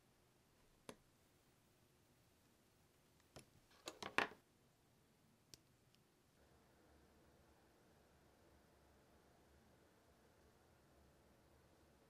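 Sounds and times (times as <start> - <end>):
clicks of plastic model parts: 3.2 - 4.4.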